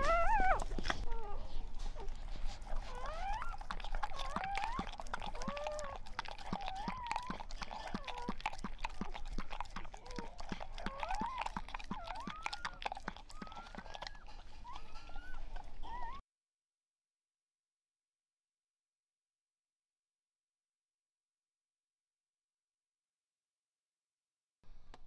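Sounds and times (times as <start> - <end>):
puppy whimpering and squealing: 0.0 - 16.2
dog licking from a plate: 0.1 - 16.2.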